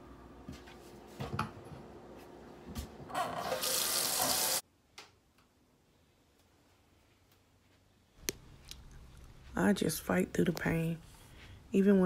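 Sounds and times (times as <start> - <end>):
faucet running into sink: 3.4 - 4.6.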